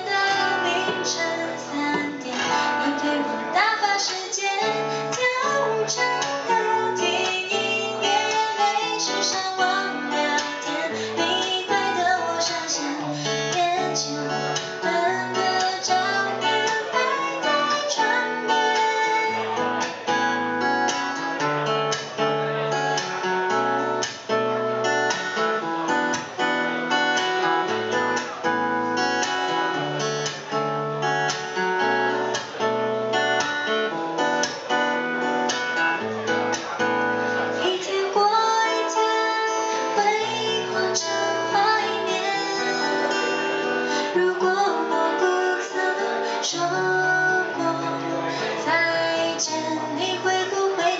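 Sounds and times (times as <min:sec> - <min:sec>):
woman singing: 0:00.0 - 0:19.6, 0:37.4 - 0:50.9
acoustic guitar strumming: 0:00.0 - 0:50.9.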